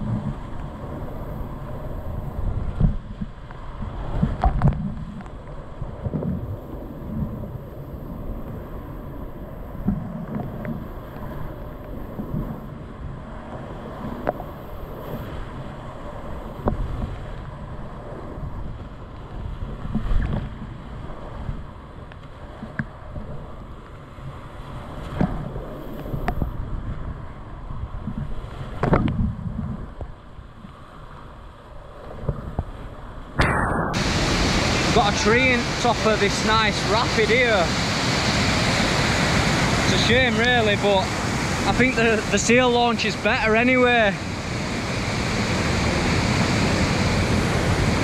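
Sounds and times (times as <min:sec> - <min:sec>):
low buffeting rumble on microphone: 0:00.0 - 0:13.3
rushing whitewater: 0:33.8 - 0:48.0.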